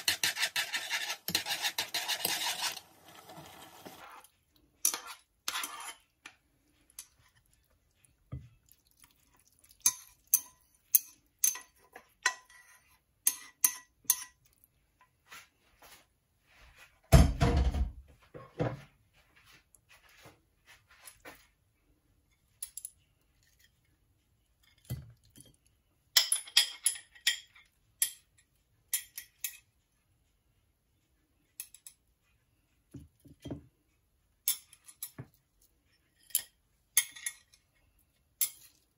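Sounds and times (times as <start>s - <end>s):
utensils clinking against a saucepan: 0.0s - 7.3s, 9.7s - 14.5s, 24.6s - 29.8s, 31.5s - 32.0s, 34.4s - 35.3s, 35.9s - 37.8s, 38.4s - 38.9s.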